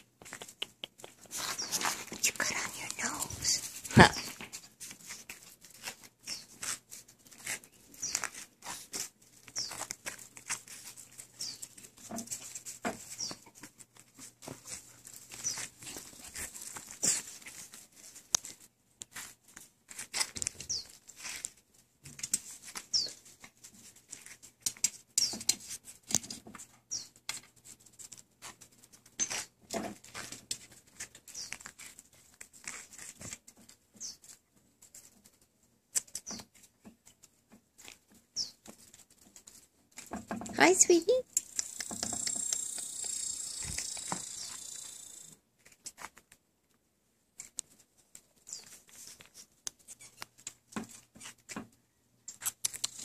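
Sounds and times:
puppy paws clicking on pavers: 0.0 - 53.0
puppies chirping: 41.5 - 45.3.

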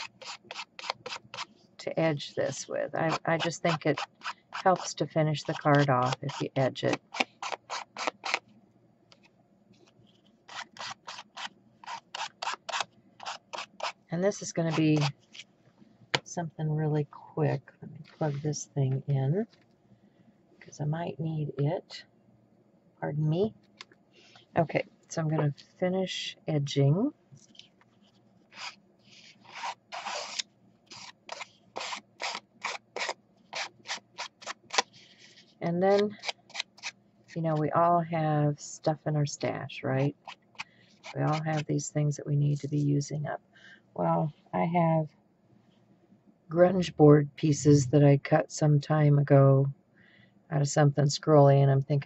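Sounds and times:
ink pad scratching on card: 0.0 - 1.5, 3.0 - 8.4, 10.5 - 15.1, 28.5 - 36.9.

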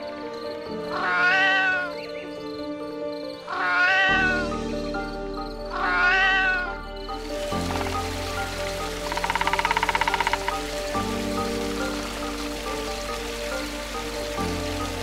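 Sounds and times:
background music with held notes: 0.0 - 15.0
animal's drawn-out call: 1.0 - 1.9, 3.5 - 4.4, 5.7 - 6.8.

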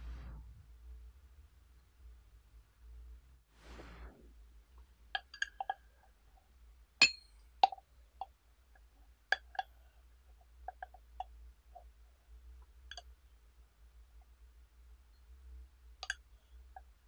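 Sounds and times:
bamboo stick clinking on glass: 5.2 - 5.8, 7.0 - 7.8, 16.0 - 16.2.

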